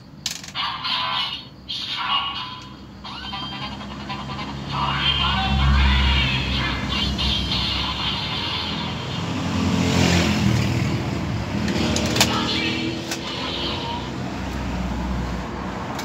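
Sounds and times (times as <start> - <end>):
toy revving vehicle effect: 0.5 - 14.6
sharp plastic clicks: 11.6 - 12.4.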